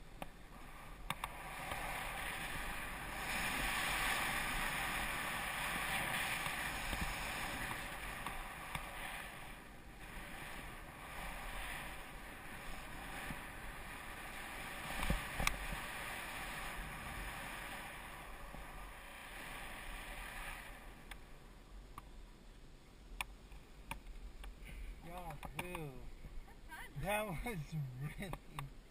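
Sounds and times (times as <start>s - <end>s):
wind rushing over microphone: 0.0s - 21.2s
skis hissing through snow: 0.4s - 21.0s.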